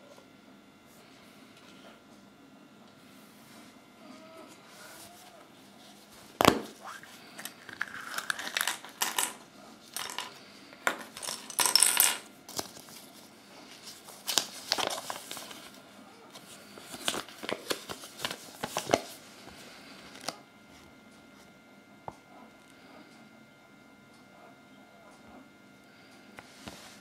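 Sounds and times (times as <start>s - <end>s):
paper rustling: 12.5s - 19.2s.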